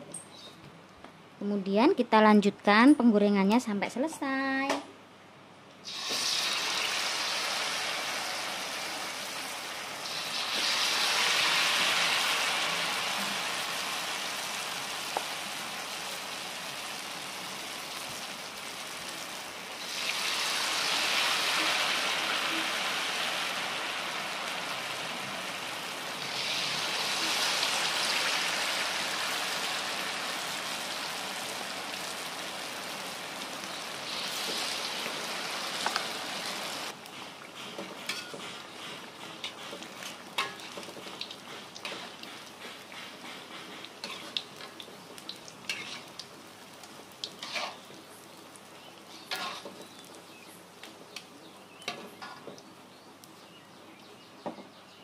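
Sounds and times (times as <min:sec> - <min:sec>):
food deep-frying in oil: 0:05.8 - 0:54.8.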